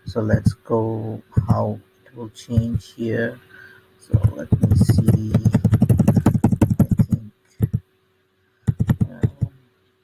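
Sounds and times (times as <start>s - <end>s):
computer keyboard keys tapping: 4.1s - 7.8s, 8.7s - 9.5s.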